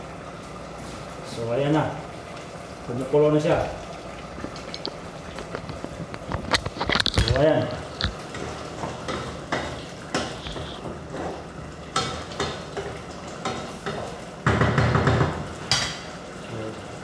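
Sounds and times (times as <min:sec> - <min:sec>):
stew bubbling: 0:03.6 - 0:14.4
wooden spoon scraping a pot: 0:05.5 - 0:11.4.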